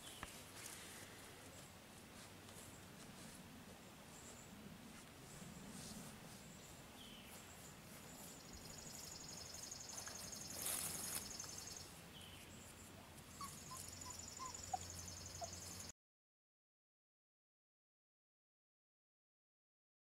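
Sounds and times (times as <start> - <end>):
rustle: 0.0 - 15.9.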